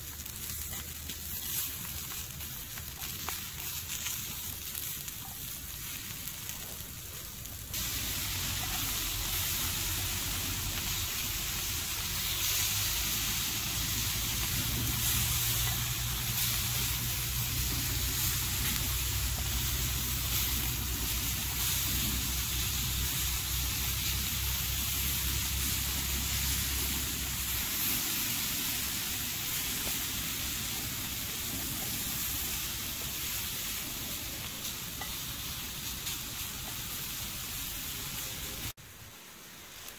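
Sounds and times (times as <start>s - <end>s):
prawns sizzling in a pan: 0.0s - 39.9s
low rumble: 6.6s - 29.4s.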